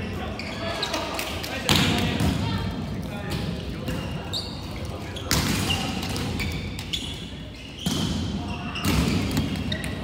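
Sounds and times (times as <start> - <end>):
volleyballs struck and thudding: 7.8 - 10.0.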